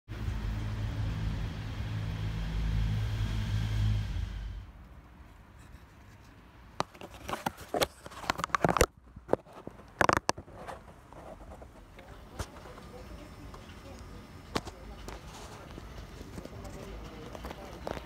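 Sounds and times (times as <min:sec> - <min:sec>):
low mechanical hum: 0:00.1 - 0:18.0
sharp clicks and knocks: 0:05.6 - 0:12.6.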